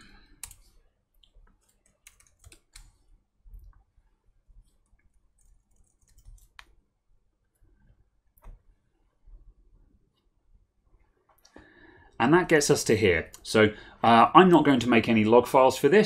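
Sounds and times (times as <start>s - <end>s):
laptop keyboard typing: 0.3s - 0.7s, 1.4s - 3.0s, 4.8s - 6.7s.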